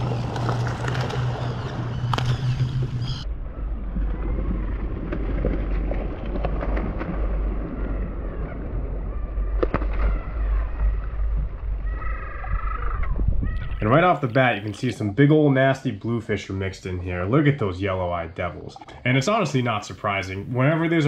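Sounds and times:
faint seabird calls: 0.0 - 4.6, 7.6 - 15.0
wind rumbling on microphone: 0.0 - 15.2.

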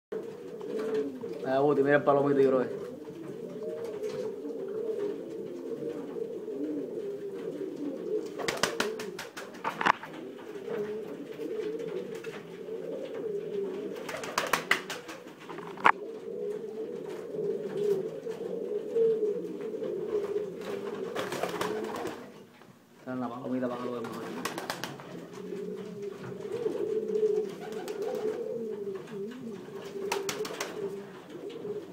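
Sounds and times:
pigeons cooing: 0.2 - 22.5, 23.4 - 31.9
wings flapping: 7.6 - 16.0, 19.8 - 22.4, 23.8 - 31.9.

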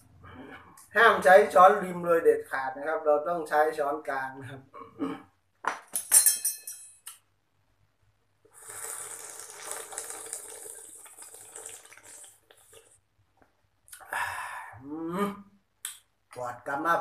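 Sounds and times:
metal spoon clinking on dish: 5.9 - 7.1
person slurping broth: 8.5 - 13.0.

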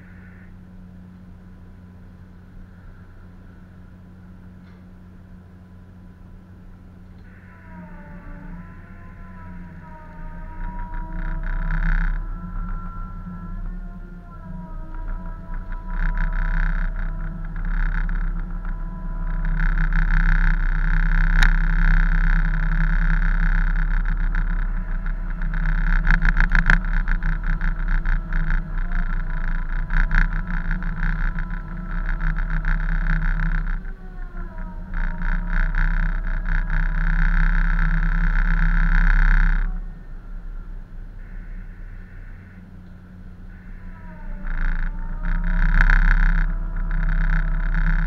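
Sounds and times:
engines and machinery droning: 0.0 - 48.0
wind on microphone: 8.2 - 40.0.

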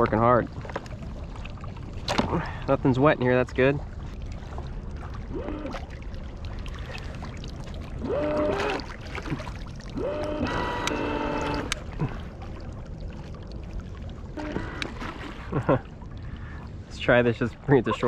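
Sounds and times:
water churning and spraying: 0.0 - 18.0
electric motor whining: 5.3 - 5.7, 8.0 - 8.8, 10.0 - 11.8.

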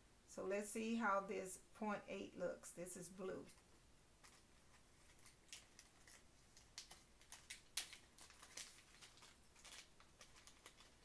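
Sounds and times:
plastic bag rustling: 4.2 - 11.0.

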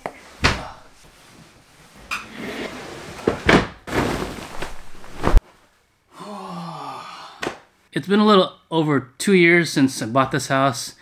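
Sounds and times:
heavy fabric swishing and rustling: 0.2 - 5.8.

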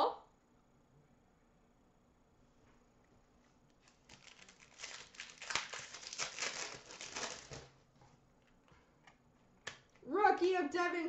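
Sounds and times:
foil wrapper tearing and crinkling: 3.8 - 7.7.

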